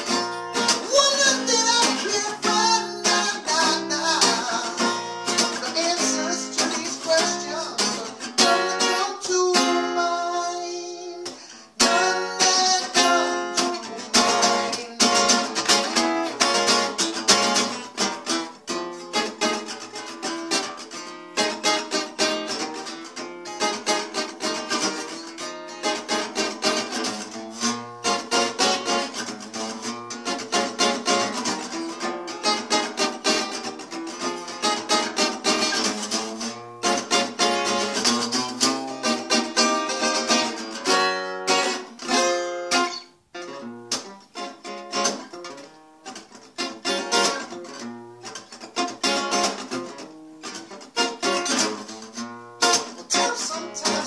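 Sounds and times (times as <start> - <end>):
man singing: 0.0 - 17.0, 53.0 - 54.0
acoustic guitar strumming: 0.0 - 54.0.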